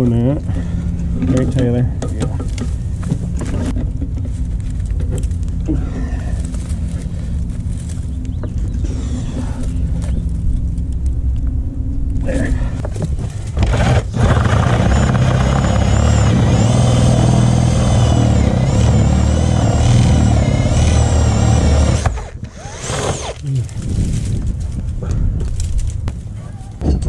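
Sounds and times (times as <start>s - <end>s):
cordless drill motor whine: 13.6s - 23.4s.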